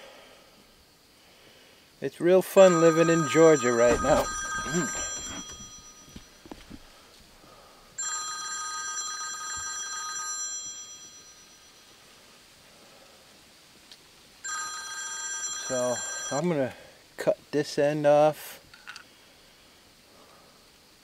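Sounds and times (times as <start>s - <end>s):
phone ringtone ringing: 2.5s - 6.5s, 8.0s - 11.8s, 14.4s - 16.5s.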